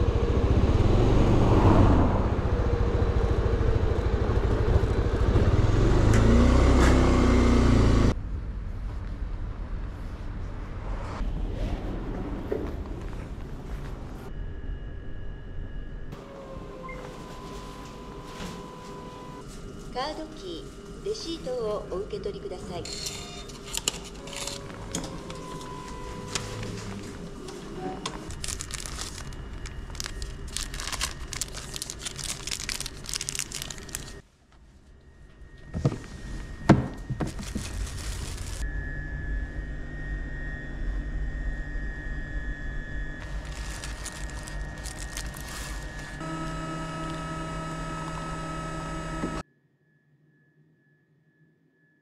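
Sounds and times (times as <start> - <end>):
steady hum: 8.1 - 49.4
clicks and crinkling: 28.3 - 34.2, 37.2 - 38.6, 43.2 - 46.2
coffee machine whirring: 43.2 - 49.4.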